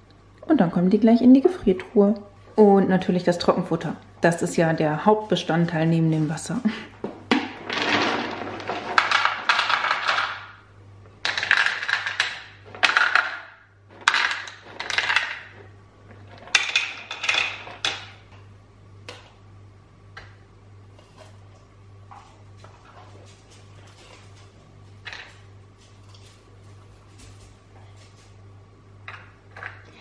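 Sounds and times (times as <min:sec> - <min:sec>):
dry kibble rattling into plastic bowls: 0:07.6 - 0:10.4, 0:11.2 - 0:15.5.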